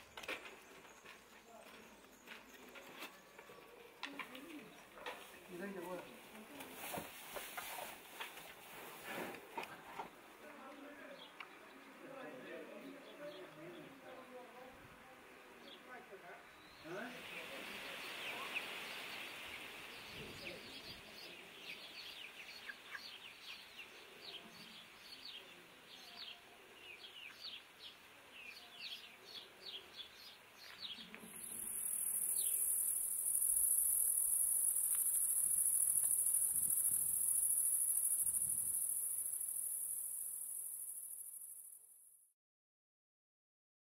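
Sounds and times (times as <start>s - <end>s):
small birds chirping: 0.0s - 6.7s, 15.6s - 41.8s
high-pitched insect drone: 31.3s - 42.1s.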